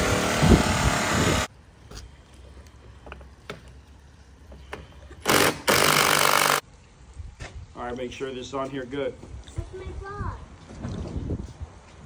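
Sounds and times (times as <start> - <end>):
power tool running in bursts: 5.3 - 6.6.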